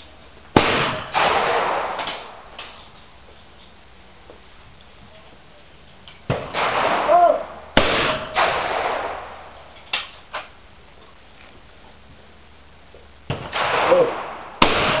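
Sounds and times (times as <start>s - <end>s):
shotgun firing: 0.6s - 2.8s, 6.3s - 9.6s, 13.3s - 15.0s
person shouting: 7.1s - 7.5s.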